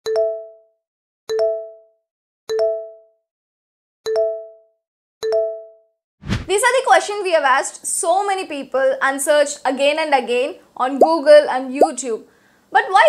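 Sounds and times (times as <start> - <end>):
notification chime click and ding: 4.1 - 5.8.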